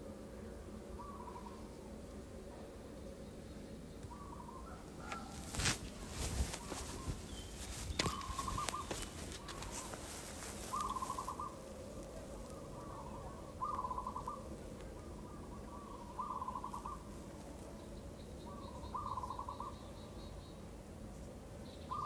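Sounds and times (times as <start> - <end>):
clicks and rustles: 5.0 - 11.2.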